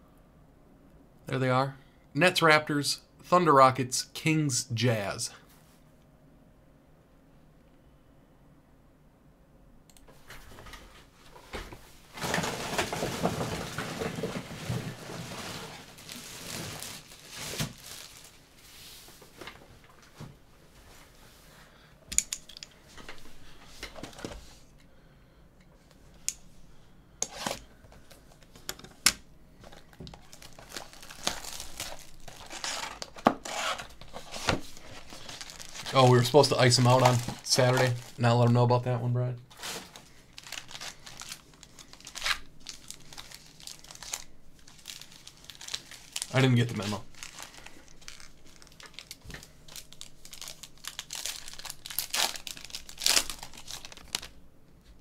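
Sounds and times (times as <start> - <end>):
plastic shrink-wrap crinkling and tearing: 12.2 - 18.4, 29.6 - 38.5, 39.5 - 54.4.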